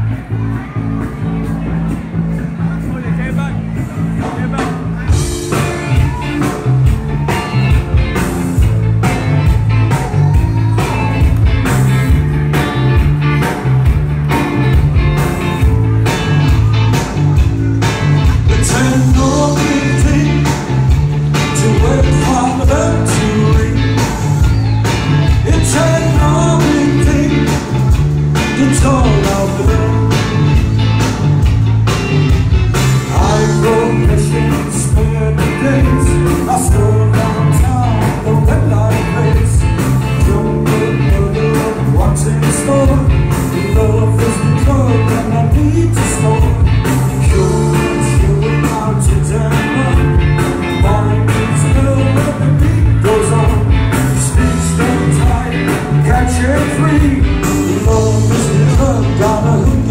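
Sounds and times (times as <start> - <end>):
drums with steady beat: 0.0 - 59.9
electric bass: 0.0 - 59.9
electric guitar: 0.0 - 59.9
male singer: 18.4 - 24.7, 25.3 - 27.8, 28.4 - 30.2, 33.0 - 59.9.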